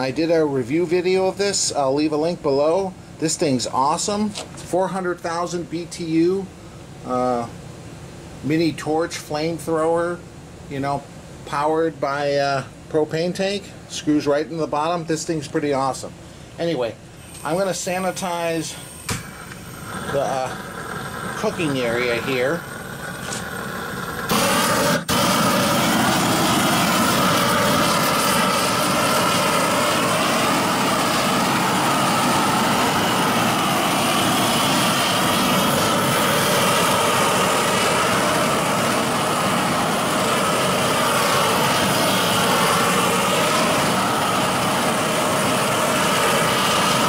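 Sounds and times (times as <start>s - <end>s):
propane torch roaring: 0.0s - 47.0s.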